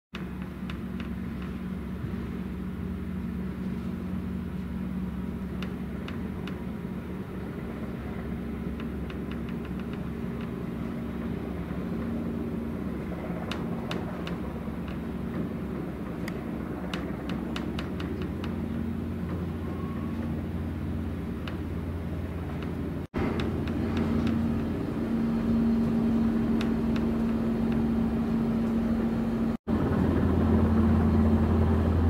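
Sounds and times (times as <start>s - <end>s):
diesel engines droning: 0.2s - 32.0s.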